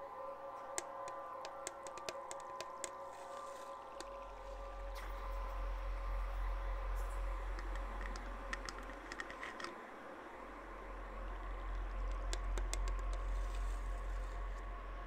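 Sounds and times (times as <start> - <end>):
ambient electronic drone: 0.0 - 15.0
light tapping clicks: 0.7 - 3.0, 7.5 - 9.8, 11.6 - 13.8.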